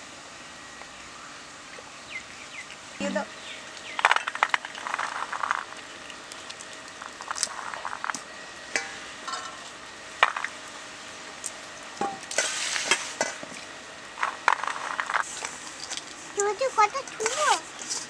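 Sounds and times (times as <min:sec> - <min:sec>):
peas rustling in a metal bowl: 0:04.0 - 0:08.2, 0:12.0 - 0:13.4, 0:14.2 - 0:16.1.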